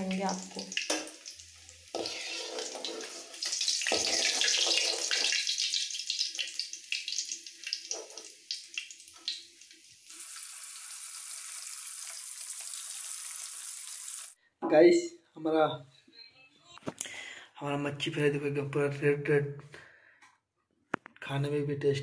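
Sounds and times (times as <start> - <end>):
fish sizzling in hot oil: 0.0 - 14.4
metal spatula scraping a pan: 1.9 - 5.4.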